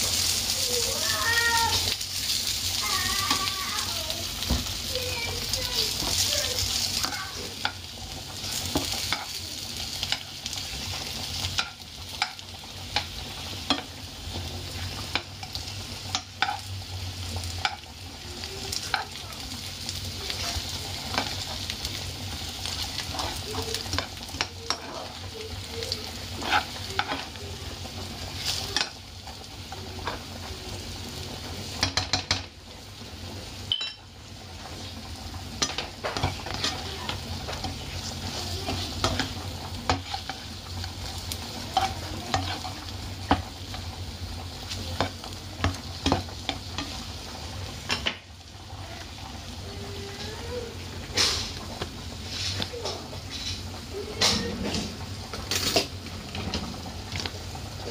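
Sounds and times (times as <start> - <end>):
chicken wings sizzling in a pan: 0.0 - 57.9
metal spoon scraping and tapping pan: 31.8 - 32.5.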